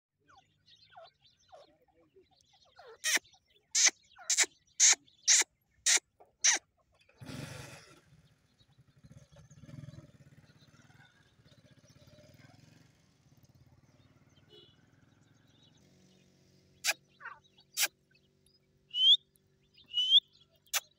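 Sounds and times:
shrill bird calls: 0:02.6 - 0:06.7, 0:16.8 - 0:18.2, 0:18.9 - 0:20.9.

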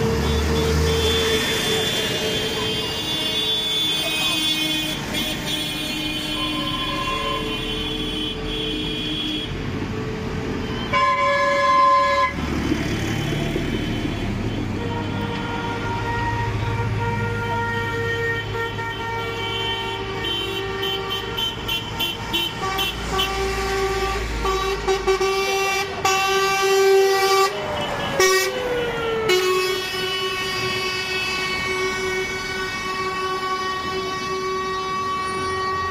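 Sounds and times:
truck air horns blasting: 0:00.0 - 0:09.7, 0:10.6 - 0:12.5, 0:13.1 - 0:35.9.

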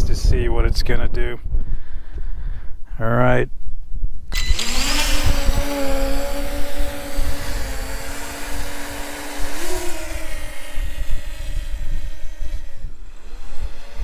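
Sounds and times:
wind buffeting microphone: 0:00.0 - 0:14.0
drone propellers whining: 0:04.3 - 0:14.0.

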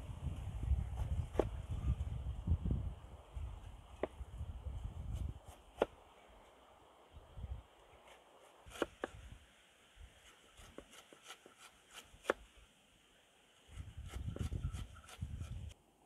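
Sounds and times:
low rumbling noise: 0:00.0 - 0:05.4.

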